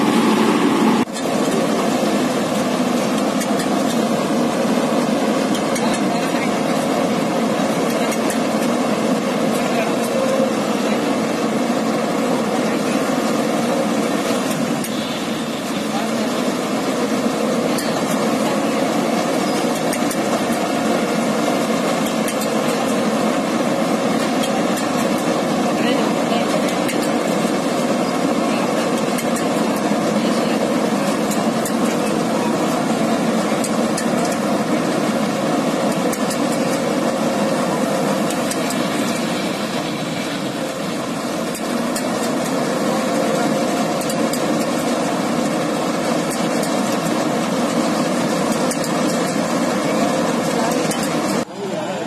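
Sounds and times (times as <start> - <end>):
combine harvester droning: 0.0 - 52.0.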